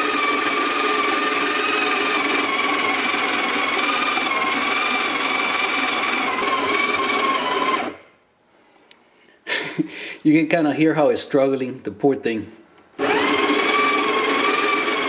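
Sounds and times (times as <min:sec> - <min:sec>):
coffee grinder motor whining: 0:00.0 - 0:08.1, 0:13.0 - 0:15.0.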